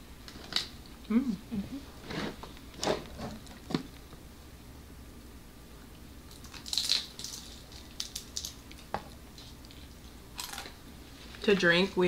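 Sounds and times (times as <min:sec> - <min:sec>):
crunchy bites of fried food: 0:06.3 - 0:10.8.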